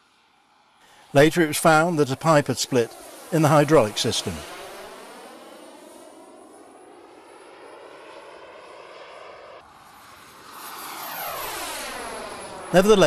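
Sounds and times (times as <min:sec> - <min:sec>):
jet turbine roar and whine: 0:00.0 - 0:13.0.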